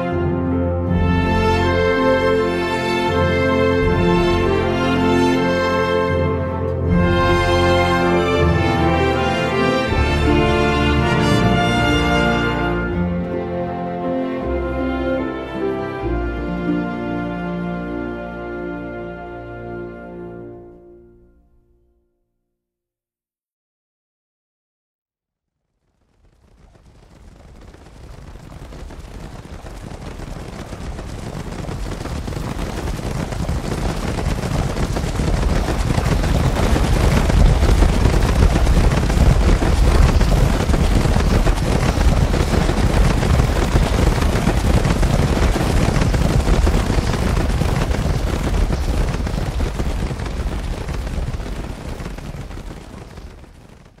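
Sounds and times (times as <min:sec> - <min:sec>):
herd of hooves pounding: 0:26.5 - 0:54.0.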